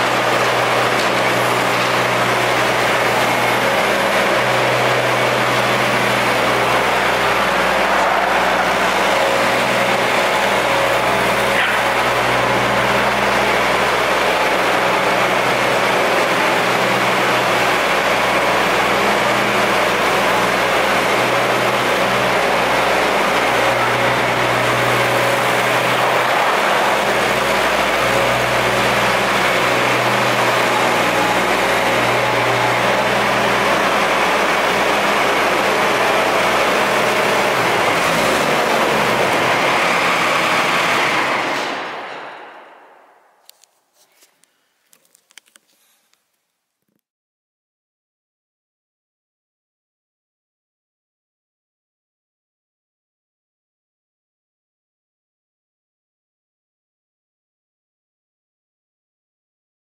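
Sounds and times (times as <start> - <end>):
skid steer diesel engine running: 0.0 - 43.0.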